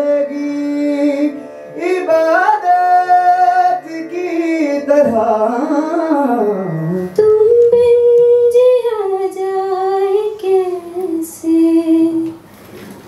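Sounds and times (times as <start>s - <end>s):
man singing wordless phrase: 0.0s - 7.0s
woman singing long notes: 6.1s - 12.4s.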